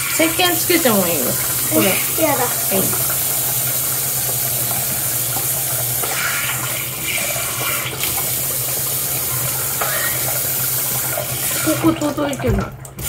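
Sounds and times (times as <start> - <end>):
tap water running into basin: 0.0 - 13.0
water splashing: 0.0 - 13.0.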